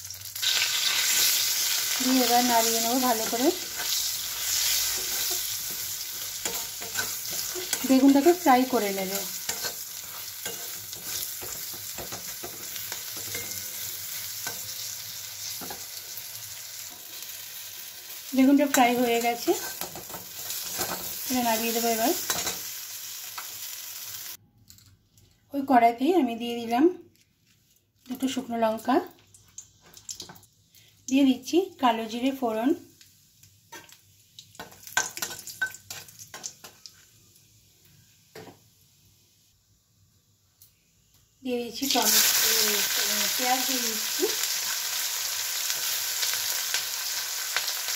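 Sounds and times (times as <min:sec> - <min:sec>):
vegetables sizzling in oil: 0:00.0 - 0:24.4, 0:28.0 - 0:39.5, 0:41.4 - 0:47.9
metal spatula scraping pan: 0:03.0 - 0:08.4, 0:09.0 - 0:14.8, 0:19.4 - 0:21.2.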